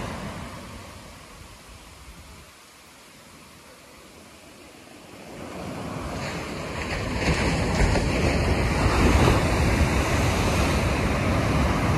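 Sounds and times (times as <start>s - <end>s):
ocean waves breaking on beach: 0.0s - 11.9s
wind buffeting microphone: 5.4s - 11.9s.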